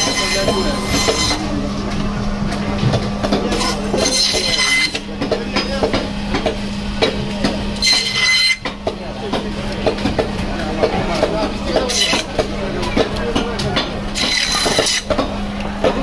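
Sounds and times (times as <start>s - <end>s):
saw blade squealing: 0.0s - 1.4s, 3.5s - 5.1s, 7.8s - 8.7s, 14.2s - 15.1s
band saw humming: 0.0s - 16.0s.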